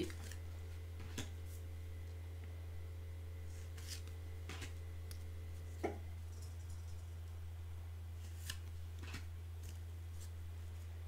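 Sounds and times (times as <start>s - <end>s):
steady low hum: 0.0s - 11.0s
cards scraping in a deck: 3.5s - 4.8s, 8.2s - 10.3s.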